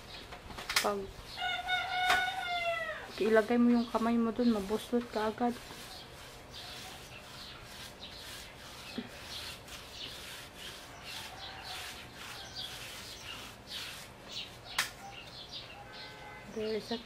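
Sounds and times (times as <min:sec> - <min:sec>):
paintbrush strokes rubbing: 0:02.3 - 0:14.7.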